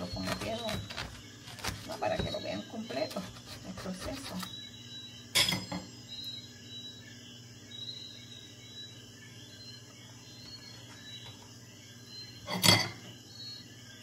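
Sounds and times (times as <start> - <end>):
spatula scraping cake in foil pan: 0.0 - 4.5
insects chirping: 0.0 - 14.0.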